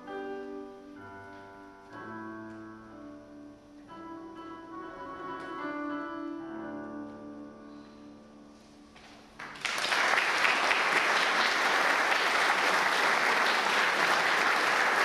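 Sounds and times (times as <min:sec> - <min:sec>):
audience applauding: 0:09.4 - 0:15.0.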